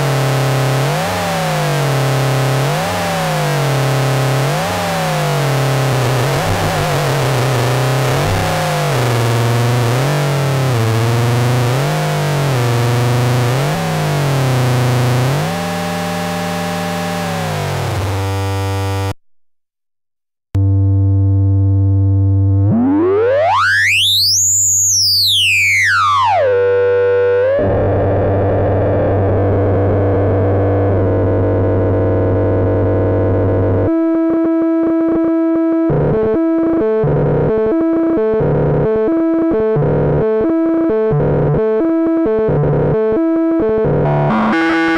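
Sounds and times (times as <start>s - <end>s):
buzzy synth noise: 0.0s - 19.1s, 20.6s - 34.0s, 43.8s - 44.9s
stepped synth notes: 0.0s - 19.1s, 37.9s - 44.9s
low synth drone with sweep: 2.4s - 19.0s, 20.6s - 34.0s, 41.2s - 44.9s
wobbling synthesizer tone: 4.4s - 18.6s, 22.2s - 32.5s, 42.5s - 44.9s.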